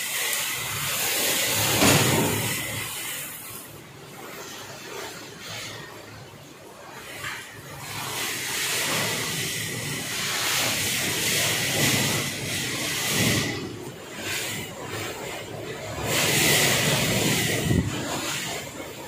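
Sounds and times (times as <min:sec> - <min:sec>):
wind and rain through trees: 0:00.0 - 0:04.3
wind buffeting microphone: 0:16.2 - 0:18.4.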